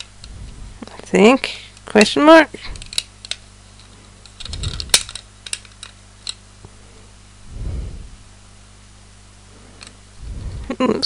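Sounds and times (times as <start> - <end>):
plastic pieces clicking: 2.7 - 6.4.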